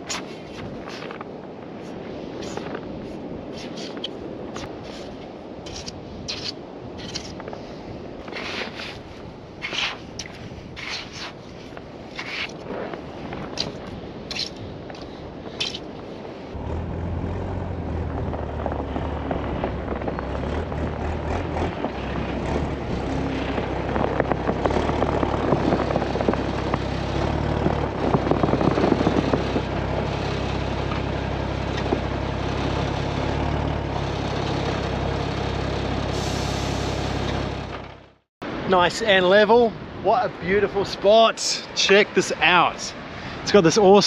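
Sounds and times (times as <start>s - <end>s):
wheel crunching in sand: 8.2s - 38.0s
diesel truck engine running: 16.6s - 38.2s.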